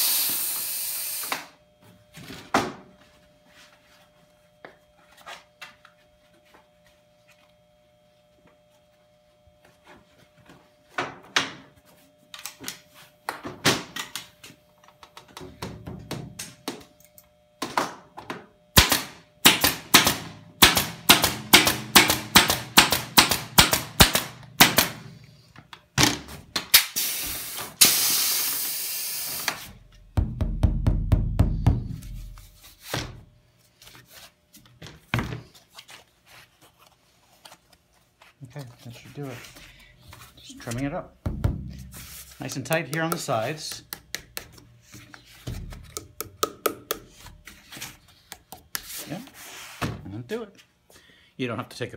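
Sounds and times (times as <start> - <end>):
loud hiss of air: 0.0 - 1.5, 26.7 - 29.7
air staple gun firing: 18.8 - 25.0, 26.7 - 29.7
low thumps: 41.2 - 42.1.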